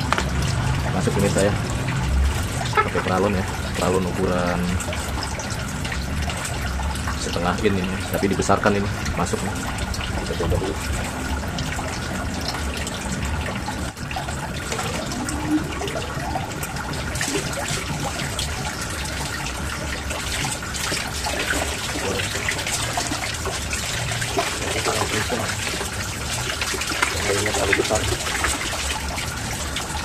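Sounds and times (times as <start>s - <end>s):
water splashing into pond: 0.0s - 30.0s.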